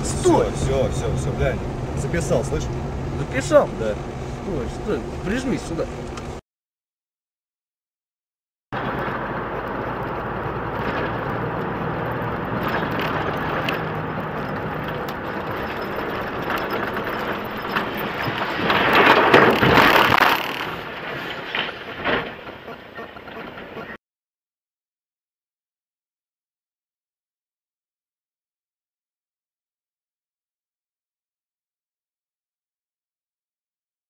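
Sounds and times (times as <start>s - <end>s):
road noise: 0.0s - 6.4s, 8.8s - 24.0s
truck engine running: 0.0s - 6.4s, 8.8s - 24.0s.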